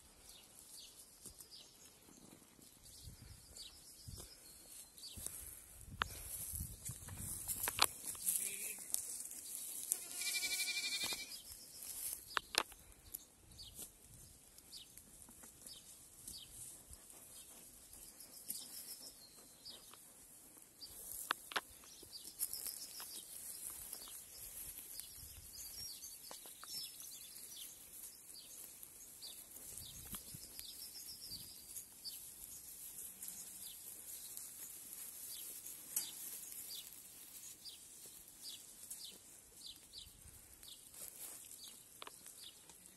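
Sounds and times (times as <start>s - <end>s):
goat kid bleating: 9.9s - 11.3s
faint high bird chirps: 10.0s - 12.1s.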